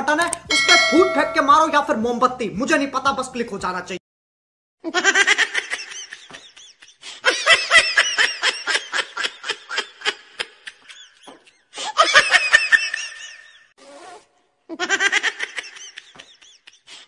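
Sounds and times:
high-pitched laughter: 4.8 - 13.7, 14.7 - 17.0.

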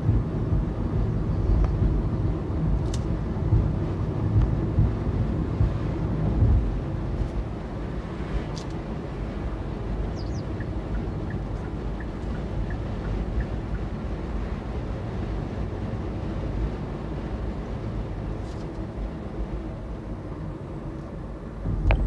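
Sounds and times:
road and tyre rumble: 0.0 - 22.0.

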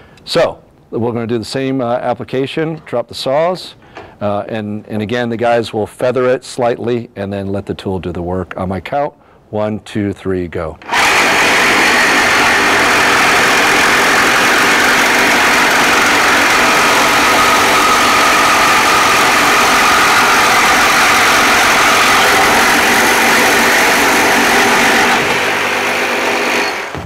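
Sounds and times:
reciprocating saws cutting metal: 10.8 - 27.0.

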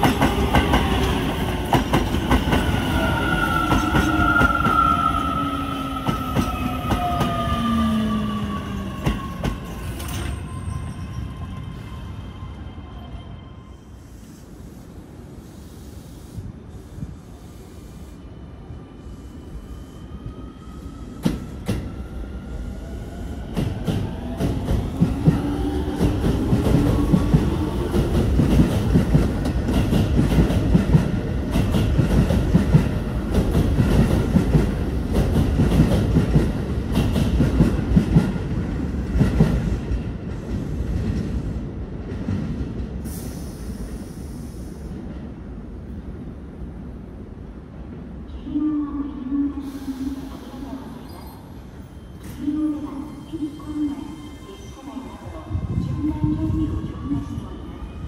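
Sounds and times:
electric train passing: 0.0 - 48.2
falling whine of train: 0.0 - 58.0.

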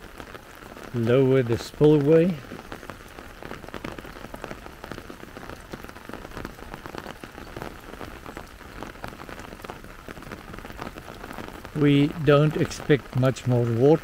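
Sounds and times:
rain on an umbrella: 0.0 - 14.0.

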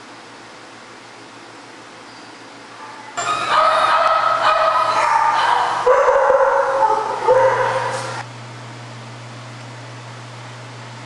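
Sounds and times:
dogs whining and yelping: 2.8 - 8.2.

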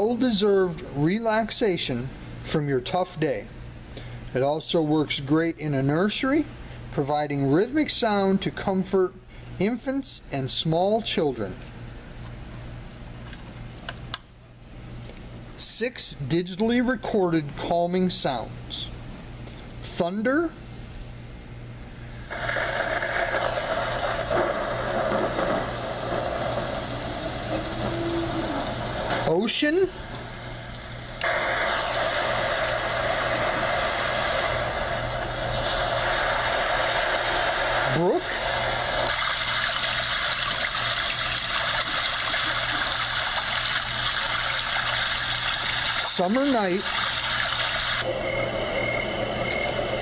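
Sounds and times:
running water from sound machine: 22.3 - 50.0
recorded thunder from small speaker: 22.4 - 27.8.

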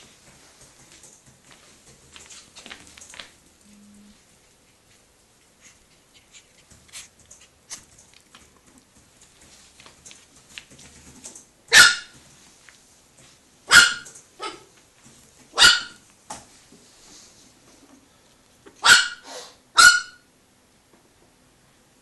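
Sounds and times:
puppy yapping: 11.7 - 12.2, 13.7 - 14.7, 15.5 - 16.0, 18.8 - 20.3.

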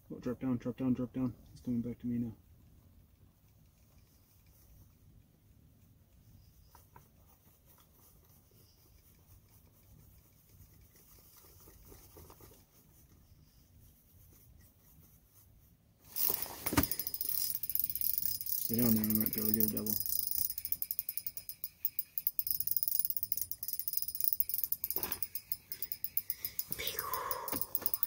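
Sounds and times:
fishing reel clicking: 16.2 - 28.0.

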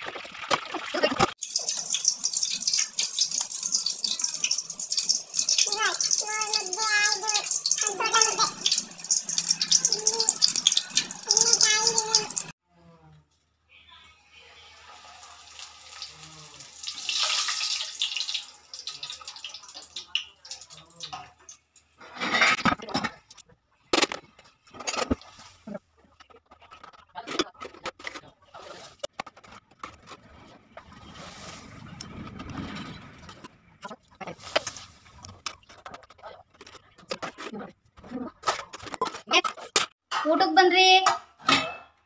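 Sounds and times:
hot oil sizzling: 0.0 - 12.5, 14.6 - 22.0.

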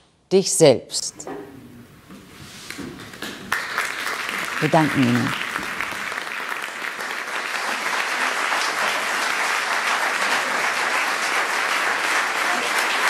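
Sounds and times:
audience applauding: 2.6 - 13.0.

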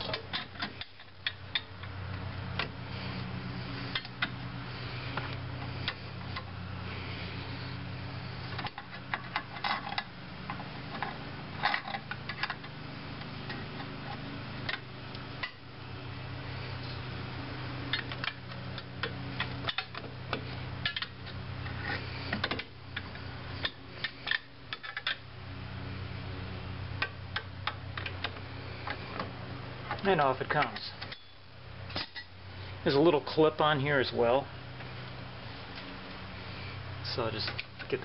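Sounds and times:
low hum: 0.0 - 38.0.

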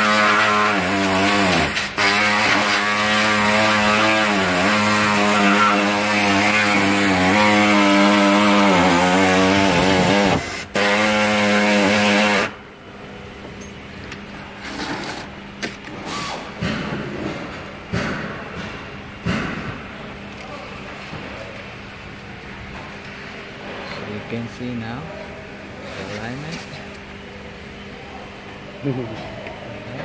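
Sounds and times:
power tool cutting sheet metal: 0.0 - 12.6.

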